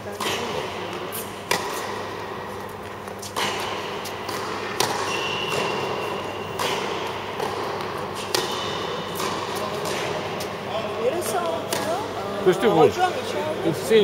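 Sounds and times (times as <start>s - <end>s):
tennis ball hits and bounces: 0.1s - 12.1s
high shoe squeak: 4.8s - 6.7s.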